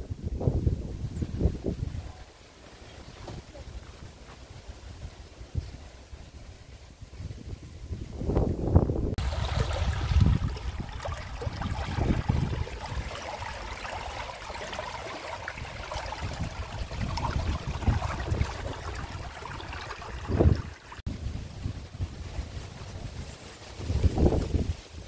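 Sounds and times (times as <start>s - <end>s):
wind buffeting microphone: 0.0s - 2.2s, 3.2s - 25.0s
stream water rushing: 9.2s - 21.1s.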